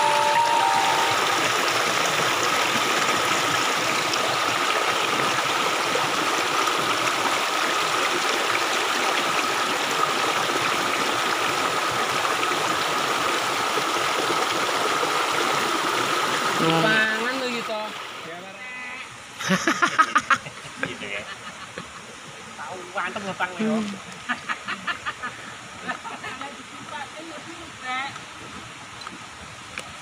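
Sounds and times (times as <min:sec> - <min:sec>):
water rushing over stones: 0:00.0 - 0:18.4.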